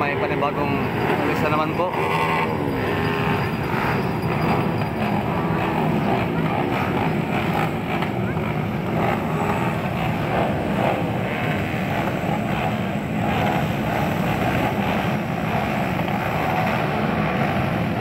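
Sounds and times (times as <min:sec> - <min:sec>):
dirt bike engines revving: 0:00.0 - 0:18.0.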